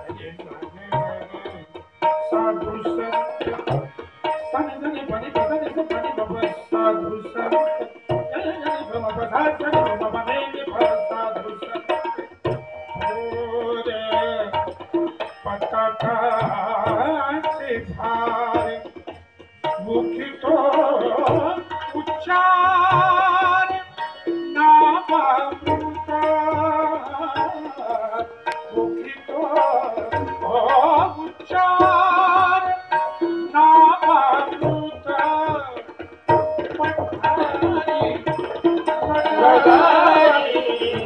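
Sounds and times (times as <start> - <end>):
harmonium: 0.0 - 41.0
hand drum: 34.6 - 41.0.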